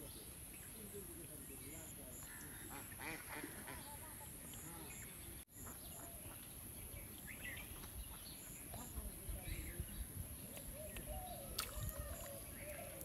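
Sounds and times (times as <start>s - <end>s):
ducks calling: 2.2s - 4.0s
faint voices: 8.7s - 13.0s.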